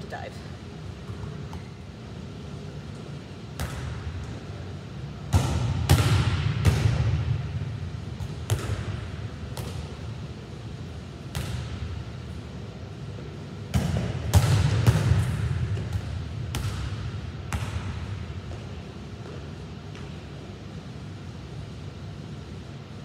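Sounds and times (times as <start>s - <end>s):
volleyball smacking gym wall: 3.6s - 4.4s, 5.2s - 10.1s, 11.2s - 12.0s, 13.7s - 18.8s.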